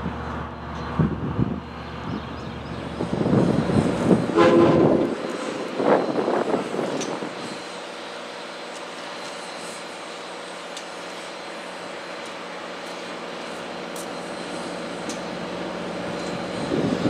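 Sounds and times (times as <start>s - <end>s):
steam locomotive exhaust chuffs: 0.0s - 17.0s
train whistle blast: 4.3s - 5.7s.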